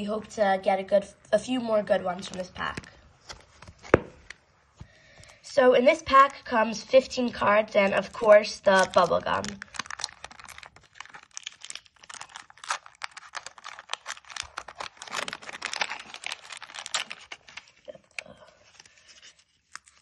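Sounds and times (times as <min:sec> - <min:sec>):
wax paper wrapper crackling: 0:05.9 - 0:20.0.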